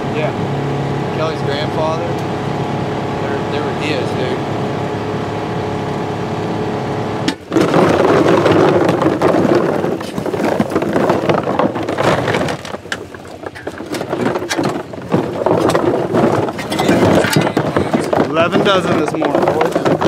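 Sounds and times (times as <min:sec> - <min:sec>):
vehicle engine running: 0:00.0 - 0:20.0
plastic decoys clattering: 0:07.3 - 0:20.0.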